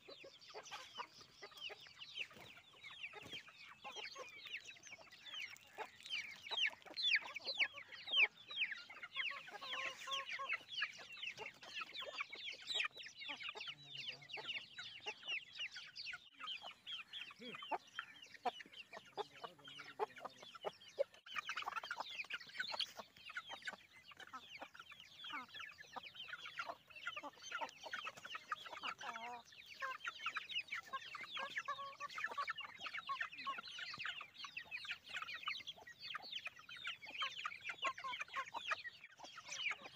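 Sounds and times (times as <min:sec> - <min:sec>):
chickens clucking: 0:00.0 - 0:39.9
chicks peeping: 0:00.0 - 0:39.9.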